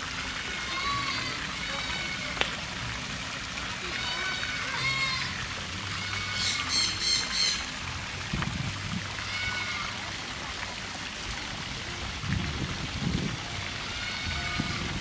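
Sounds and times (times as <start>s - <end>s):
low hum and hiss: 0.0s - 15.0s
high-pitched calls: 6.0s - 7.8s.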